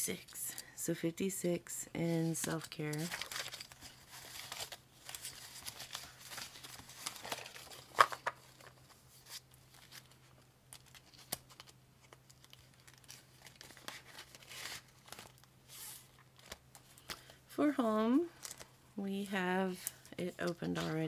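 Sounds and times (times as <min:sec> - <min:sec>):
plastic pouches crinkling: 0:02.4 - 0:17.4, 0:18.3 - 0:18.8.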